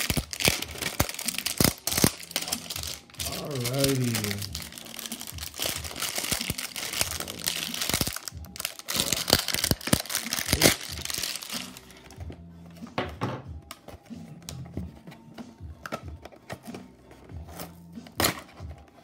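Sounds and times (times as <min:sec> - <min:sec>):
shrink wrap crinkling and tearing: 0:00.0 - 0:12.2
soft background music: 0:00.0 - 0:19.0.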